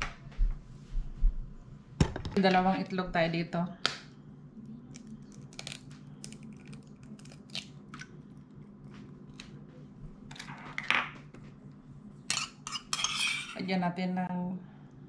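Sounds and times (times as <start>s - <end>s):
low steady hum: 0.0s - 15.0s
kitchen things scraping and rustling: 12.2s - 13.7s.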